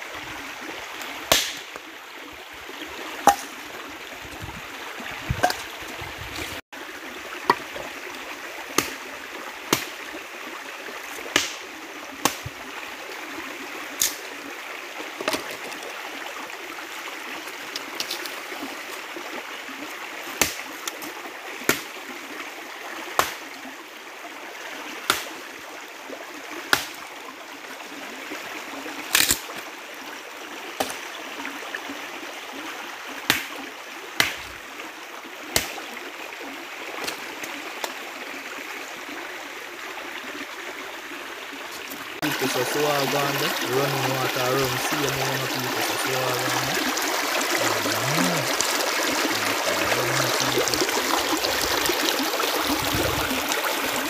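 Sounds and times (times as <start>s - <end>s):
dead branches snapping against rocks: 1.3s - 1.7s, 29.1s - 29.5s
stream rushing: 36.8s - 54.0s.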